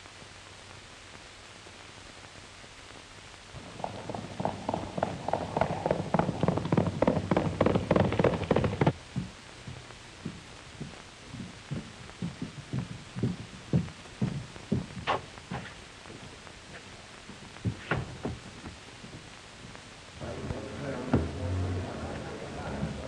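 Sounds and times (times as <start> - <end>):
old film soundtrack hiss: 0.0 - 23.0
galloping horse hoofbeats: 3.6 - 19.8.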